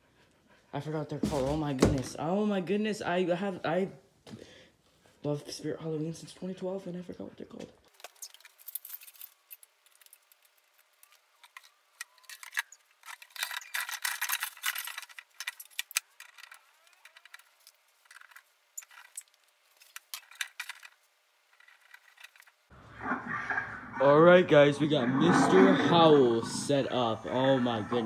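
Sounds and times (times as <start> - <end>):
metal poles clinking and rattling: 7.9 - 22.7.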